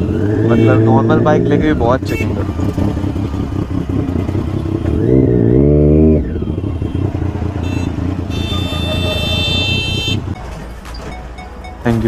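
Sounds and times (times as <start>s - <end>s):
motorcycle engine revving: 0.0s - 10.4s
high steady tone: 10.4s - 12.0s.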